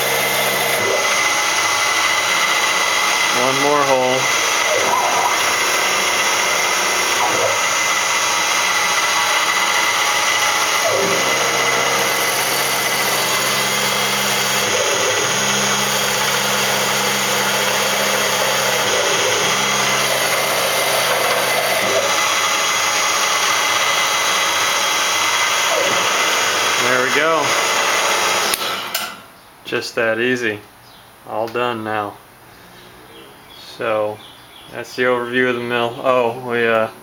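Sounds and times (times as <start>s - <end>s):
milling machine spindle motor: 0.0s - 29.1s.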